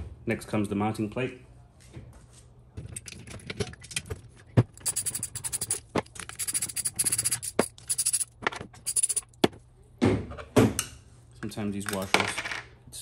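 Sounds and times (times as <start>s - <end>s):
metal clatter: 4.7s - 9.4s
metal tool scraping bolts: 4.8s - 9.4s
sharp metallic clicks: 4.8s - 9.4s.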